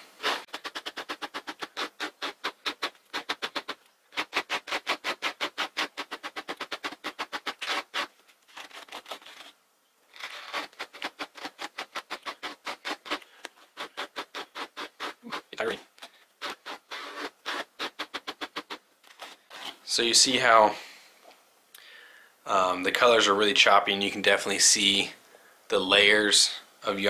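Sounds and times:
brush raking through yarn: 0:00.0 - 0:15.8, 0:16.4 - 0:20.0.

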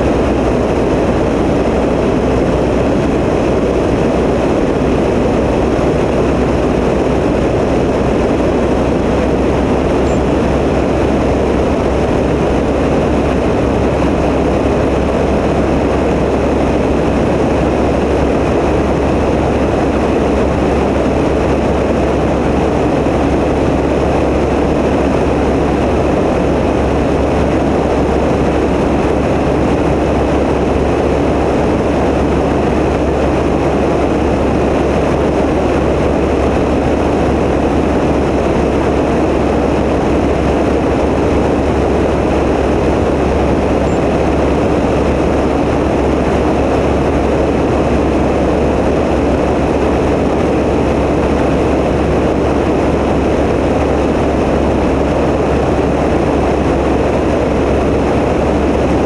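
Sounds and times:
light aircraft engine droning: 0:00.0 - 0:59.0.

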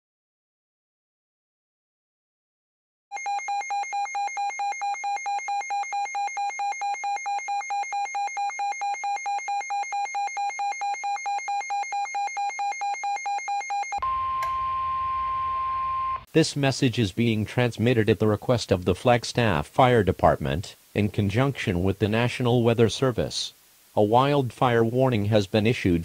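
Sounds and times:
steady warning alarm tone: 0:03.1 - 0:16.3.

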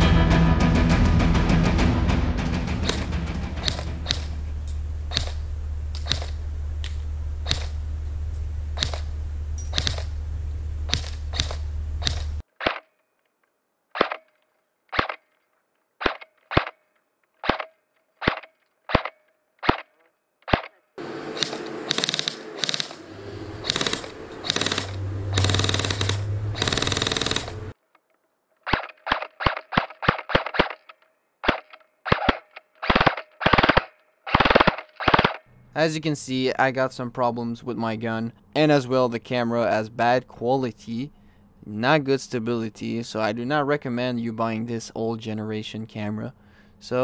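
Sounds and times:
low hum: 0:00.0 - 0:12.4, 0:21.0 - 0:27.8
airsoft gun shots: 0:02.8 - 0:04.4, 0:05.1 - 0:05.4, 0:06.0 - 0:06.4, 0:07.4 - 0:07.8, 0:08.8 - 0:09.1, 0:09.7 - 0:10.1, 0:10.9 - 0:12.9, 0:21.3 - 0:23.0, 0:23.6 - 0:27.6, 0:31.4 - 0:35.4.

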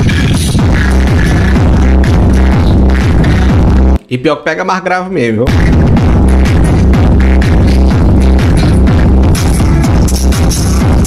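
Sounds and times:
electronic dance music with deep bass: 0:00.0 - 0:04.0, 0:05.4 - 0:11.0
falling bass sweeps: 0:05.5 - 0:11.0.

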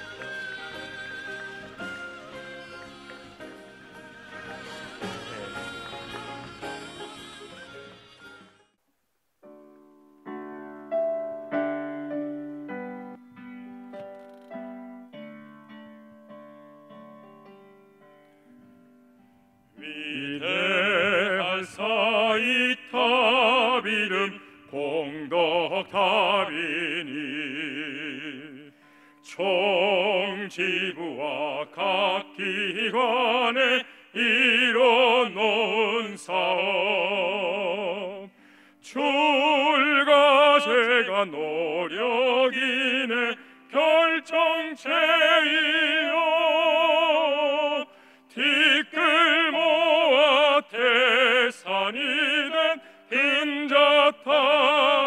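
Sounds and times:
operatic solo singing: 0:00.0 - 0:07.8, 0:19.8 - 0:55.0.

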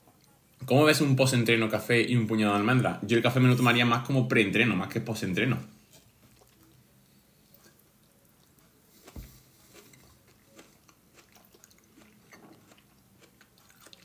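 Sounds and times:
person chewing: 0:06.1 - 0:14.0.

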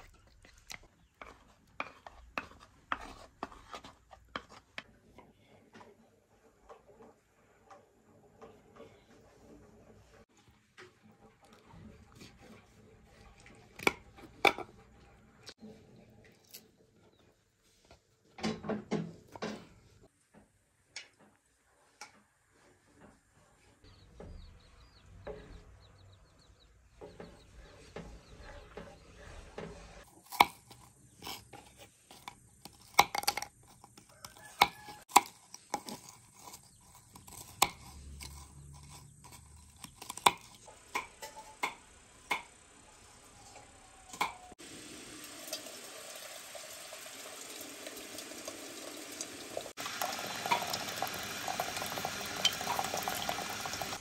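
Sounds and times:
knife chopping crackers on board: 0:00.0 - 0:04.9, 0:30.1 - 0:42.5
spoon stirring batter in metal bowl: 0:00.0 - 0:20.1, 0:21.0 - 0:44.6.

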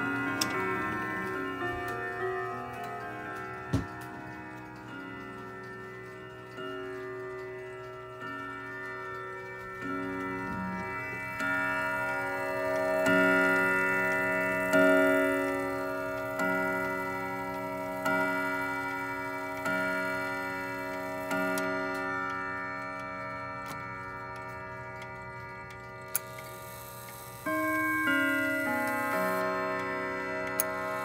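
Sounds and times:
clock chime strikes: 0:00.0 - 0:31.0
clock ticking: 0:00.0 - 0:31.0.

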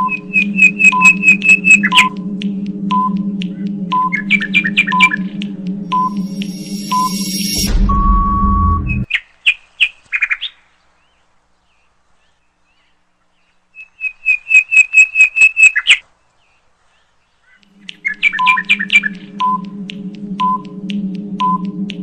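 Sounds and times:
bird-like chirps: 0:00.0 - 0:02.2, 0:16.9 - 0:19.6
held beep: 0:00.0 - 0:05.3, 0:05.9 - 0:09.1, 0:18.4 - 0:19.8, 0:20.4 - 0:20.7, 0:21.4 - 0:21.8
background music: 0:00.0 - 0:09.1, 0:17.7 - 0:22.0
countdown beeps: 0:00.0 - 0:09.1, 0:17.8 - 0:22.0.

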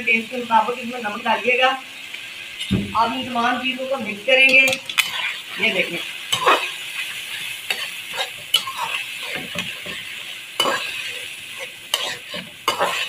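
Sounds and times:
chicken sizzling in a pan: 0:00.0 - 0:13.0
metal spoon scraping a pan: 0:04.4 - 0:13.0.

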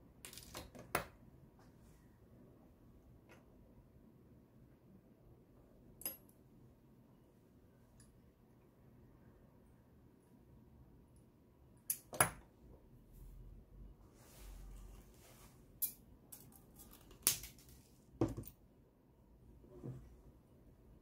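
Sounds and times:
metallic clicks of pliers and wire: 0:11.8 - 0:12.4.

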